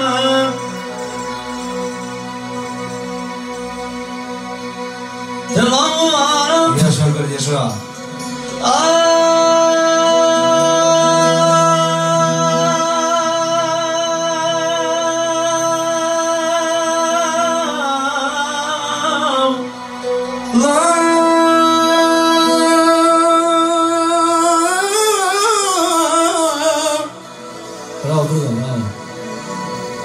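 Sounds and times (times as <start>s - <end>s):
man singing into a microphone: 0.0s - 1.0s, 5.5s - 7.5s, 8.4s - 28.9s.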